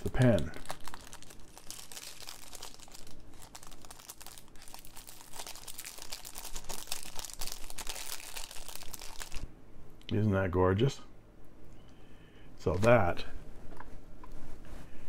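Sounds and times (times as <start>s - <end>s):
plastic sleeve crinkling: 0.0s - 9.5s.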